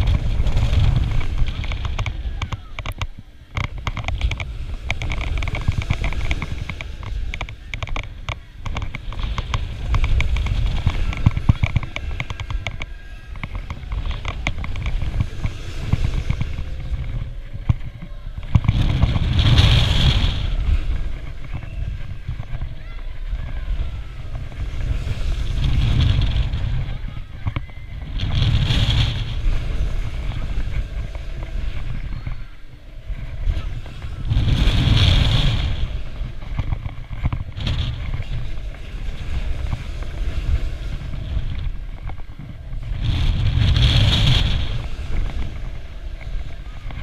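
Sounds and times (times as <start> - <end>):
ride clicking and clattering: 0.0 - 47.0
wind buffeting microphone: 0.0 - 47.0.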